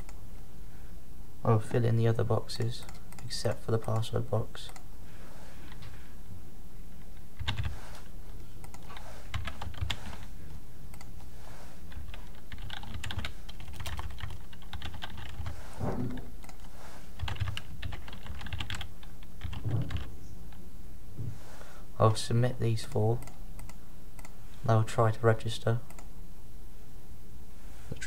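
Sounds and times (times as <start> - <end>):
steady low hum: 0.0 - 28.0
computer keyboard typing: 7.4 - 7.8, 8.6 - 10.3, 11.9 - 15.6, 16.4 - 20.1.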